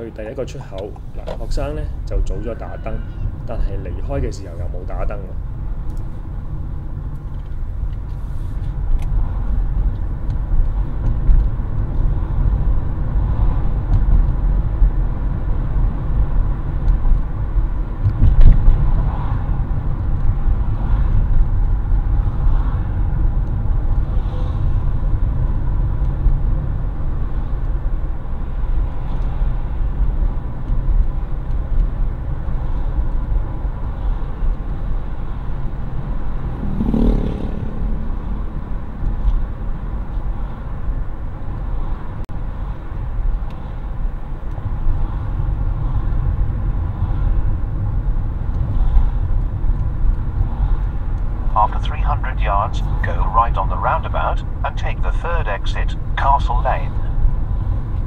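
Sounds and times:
car tyres and engine rumble: 0.0 - 58.0.

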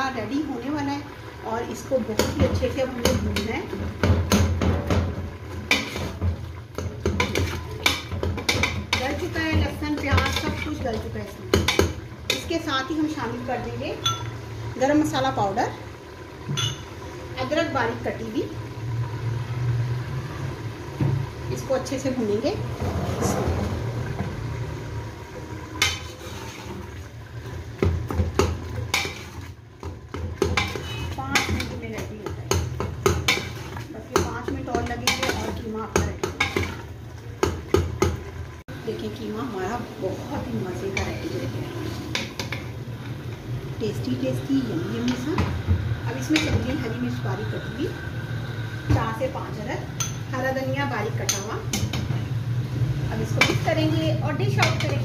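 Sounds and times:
metal ladle scraping pot: 2.2 - 13.1, 22.6 - 24.3, 25.6 - 38.3.

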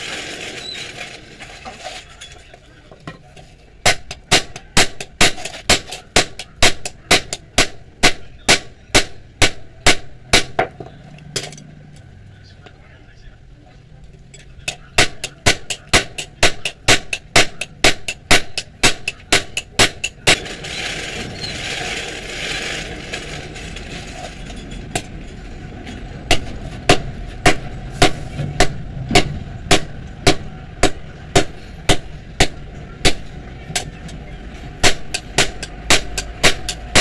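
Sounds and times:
hammer striking hot metal on anvil: 3.8 - 10.7, 14.7 - 20.4, 26.3 - 34.1, 34.8 - 37.0.

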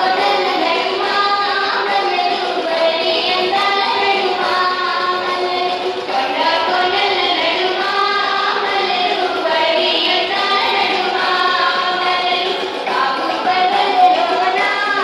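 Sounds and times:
voices singing folk song: 0.0 - 15.0.

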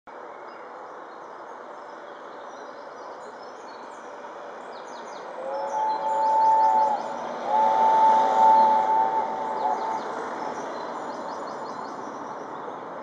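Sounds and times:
outdoor background hiss: 0.1 - 13.0
steam locomotive whistle blast: 5.4 - 10.4.

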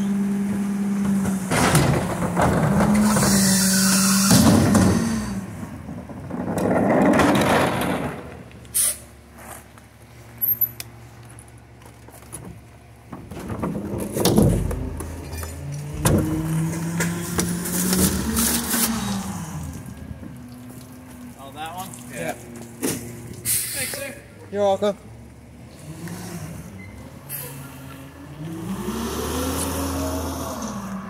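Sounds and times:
garbage truck diesel engine: 0.0 - 31.0
trash carts thumping: 0.4 - 8.6, 12.0 - 20.5.

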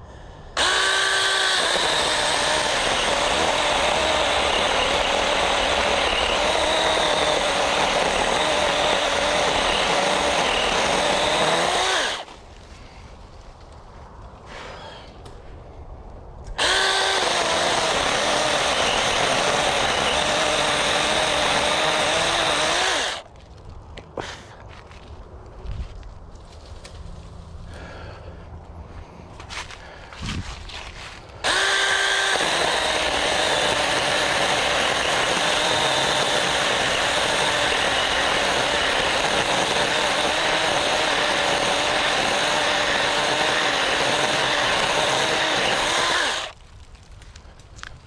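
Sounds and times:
electric chainsaw cutting wood: 0.6 - 12.4, 16.6 - 23.2, 31.4 - 46.6.

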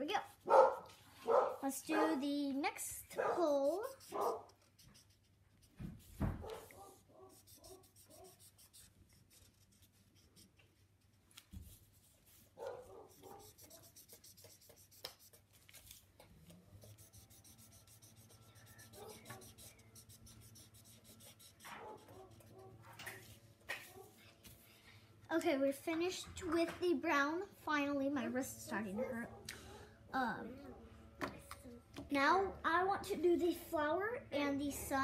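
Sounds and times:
marker scratching on paper: 0.2 - 1.0, 3.4 - 16.0, 16.8 - 24.6.

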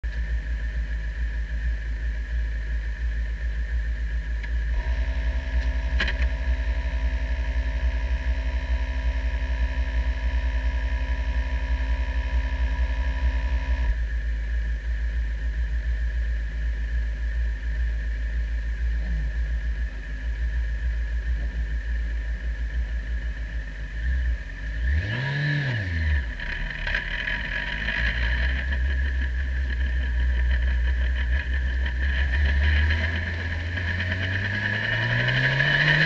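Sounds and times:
race car engine idling: 0.0 - 25.1, 25.8 - 36.0
steady whine: 0.0 - 36.0
sharp click: 5.6 - 6.3.

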